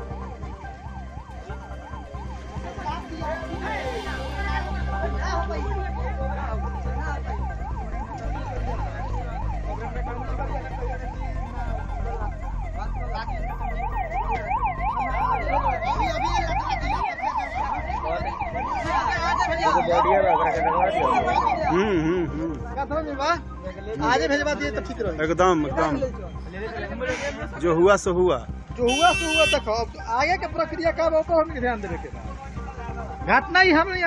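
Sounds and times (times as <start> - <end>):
low rumble: 0.0 - 16.8
sirens yelping: 0.0 - 24.2.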